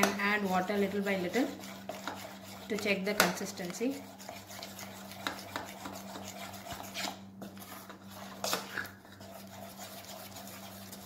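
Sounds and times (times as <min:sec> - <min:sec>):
clicks and scrapes against bowl: 0:00.0 - 0:11.0
hand mixing batter in bowl: 0:00.0 - 0:11.0.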